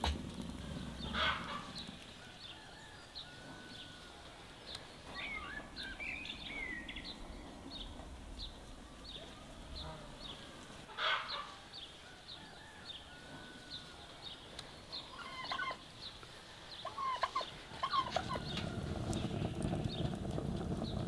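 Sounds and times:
low steady rumble: 0.0s - 12.2s, 13.2s - 21.0s
fowl calling: 0.6s - 6.8s, 8.8s - 18.8s
small bird chirping: 4.6s - 10.6s.

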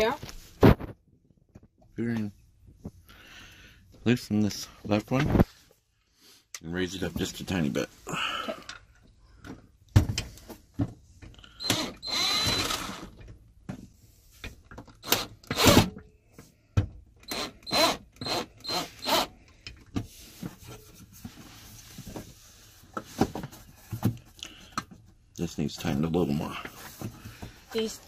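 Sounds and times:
cordless drill motor whining: 11.6s - 13.2s, 15.0s - 15.9s, 17.2s - 19.3s.

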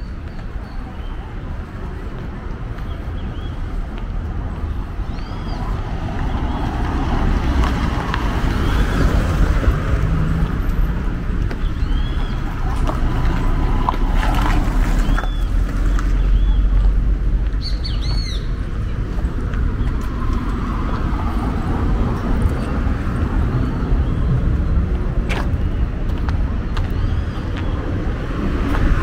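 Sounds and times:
low street rumble: 0.0s - 29.0s
bird chirping: 17.6s - 18.6s.

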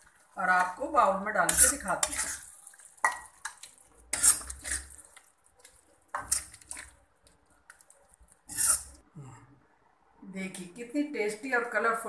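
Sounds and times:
spoon scraping an iron pan: 1.4s - 5.2s, 6.1s - 6.9s, 8.5s - 9.0s.

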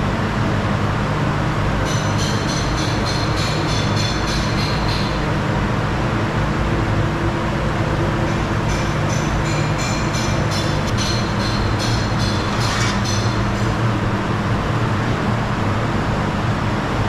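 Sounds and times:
gas burners roaring: 5.2s - 17.0s.

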